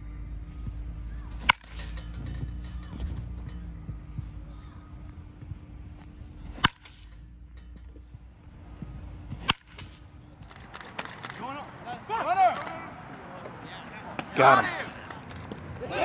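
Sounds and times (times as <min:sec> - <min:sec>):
baseball bat cracking ball: 0:01.4 - 0:03.5, 0:06.4 - 0:08.0, 0:09.3 - 0:11.8.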